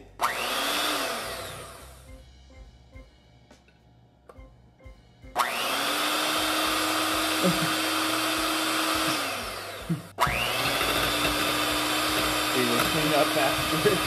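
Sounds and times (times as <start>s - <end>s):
electric mixer motor running: 0.2s - 2.0s, 5.3s - 14.0s.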